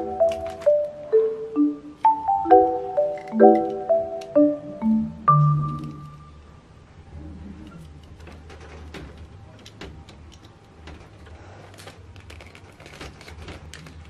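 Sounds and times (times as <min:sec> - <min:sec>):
low steady hum: 0:00.0 - 0:08.2
plastic pack rustling: 0:11.2 - 0:14.0.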